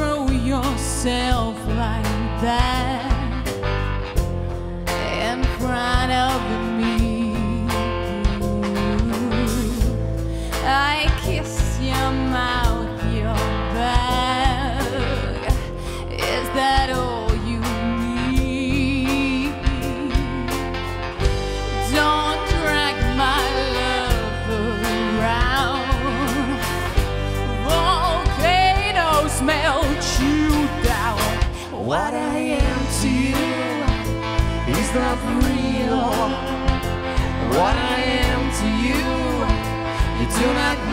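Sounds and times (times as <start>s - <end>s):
woman singing: 0.0s - 3.6s, 4.9s - 20.8s, 21.6s - 40.9s
acoustic guitar: 0.0s - 40.9s
drum kit: 0.0s - 40.9s
violin: 19.4s - 40.9s.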